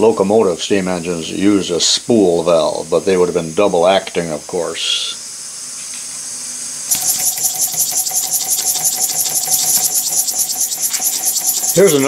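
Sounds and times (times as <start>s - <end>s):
rapid chuffing of exhaust puffs: 6.9s - 12.0s
steady thin whistle: 6.9s - 12.0s.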